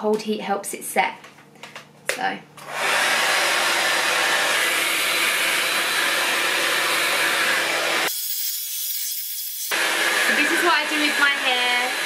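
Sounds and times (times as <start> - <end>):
hair dryer blowing: 2.6 - 8.1, 9.6 - 12.0.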